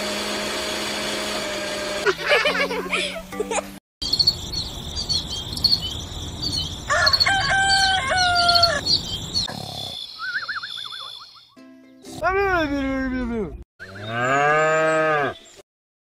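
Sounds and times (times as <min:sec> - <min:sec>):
crickets chirping: 0:04.0 - 0:11.6
birds chirping: 0:04.0 - 0:15.6
rooster crowing: 0:06.9 - 0:09.0
warbling bird call: 0:06.9 - 0:11.6.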